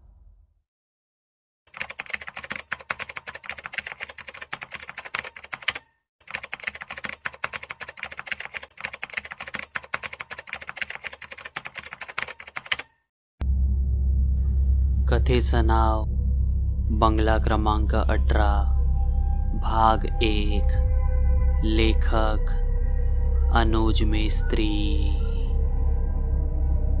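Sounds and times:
keyboard key clicks: 0:10.9 - 0:12.9.

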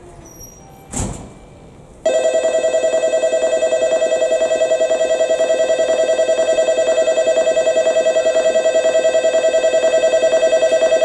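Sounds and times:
electronic alarm bell trill: 0:02.1 - 0:11.0.

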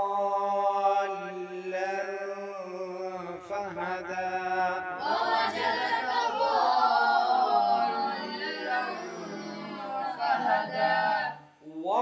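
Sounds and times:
boys chanting in unison: 0:00.0 - 0:12.0.

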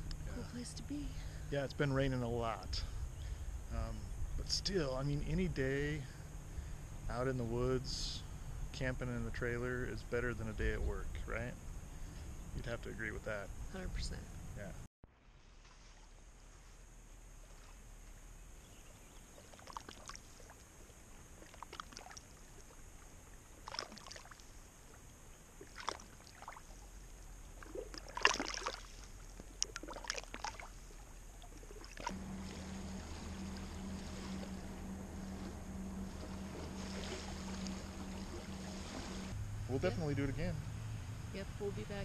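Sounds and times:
steady low hum: 0:00.0 - 0:42.0
waves lapping on gravel: 0:27.7 - 0:30.9, 0:31.8 - 0:39.4.

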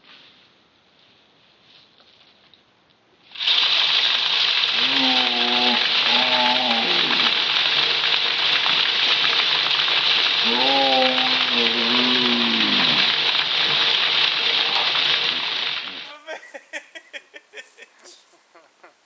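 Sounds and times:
feeder spinner flinging corn: 0:03.3 - 0:16.3
kernels pelting ground and leaves: 0:03.3 - 0:16.7
man calling out: 0:10.5 - 0:13.0, 0:16.0 - 0:16.4.

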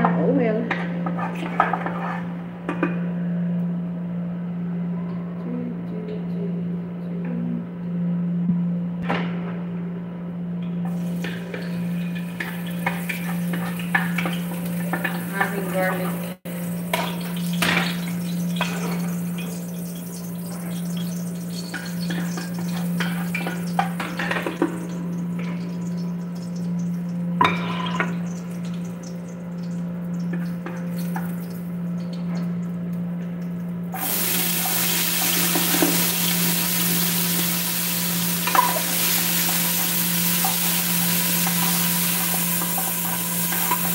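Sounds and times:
steady low hum: 0:00.0 - 0:43.9
food sizzling in a pot: 0:10.9 - 0:29.3, 0:34.0 - 0:43.9.

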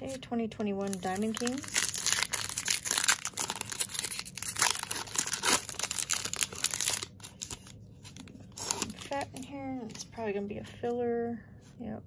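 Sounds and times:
foil wrapper tearing and crinkling: 0:00.8 - 0:09.3.

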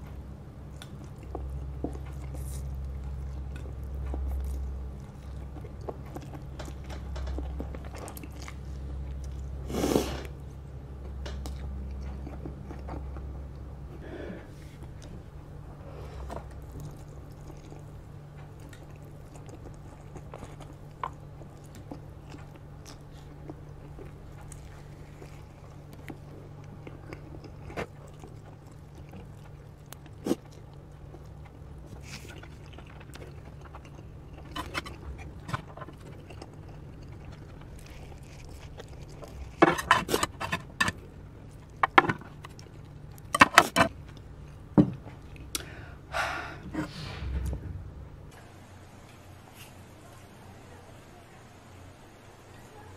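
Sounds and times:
steady low hum: 0:00.0 - 0:52.9
person chewing and slurping noodles: 0:00.2 - 0:47.4
chopsticks and ladle scraping plate: 0:39.6 - 0:41.0.

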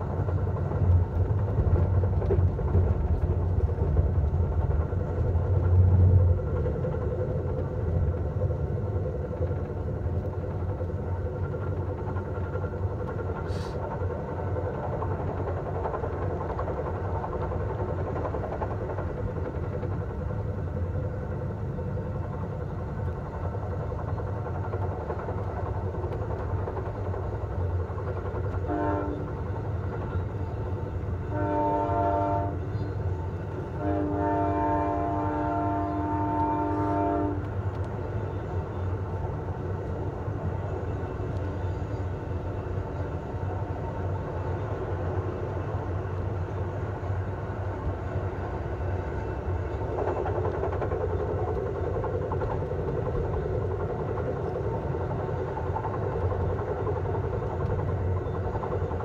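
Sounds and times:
train rumbling: 0:00.0 - 0:59.0
train horn blasts: 0:28.6 - 0:29.3, 0:31.3 - 0:32.8, 0:33.8 - 0:37.5.

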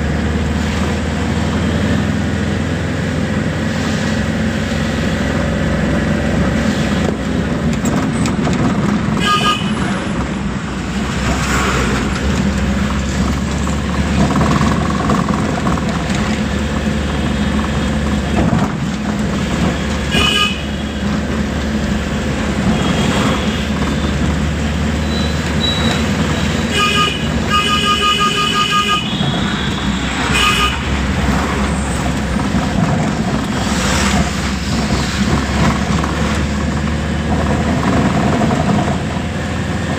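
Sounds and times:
vehicle engine and road noise: 0:00.0 - 0:39.9
horn honking: 0:09.2 - 0:10.1, 0:20.0 - 0:21.1, 0:22.6 - 0:24.2, 0:25.0 - 0:31.0.

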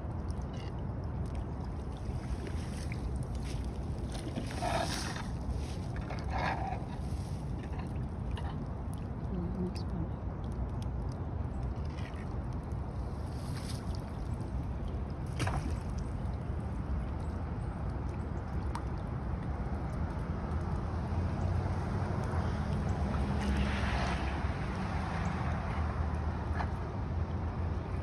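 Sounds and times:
rushing floodwater: 0:20.6 - 0:28.0.

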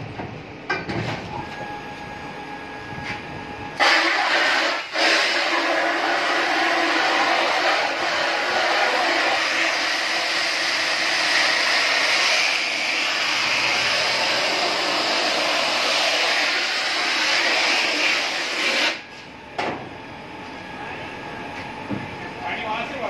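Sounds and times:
high-pressure water spray hissing: 0:03.8 - 0:13.0.

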